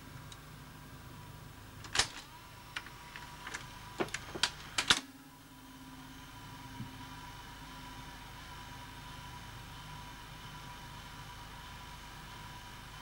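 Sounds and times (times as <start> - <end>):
video recorder hum and whine: 0.0 - 13.0
mechanical clicks and clunks: 1.8 - 5.1.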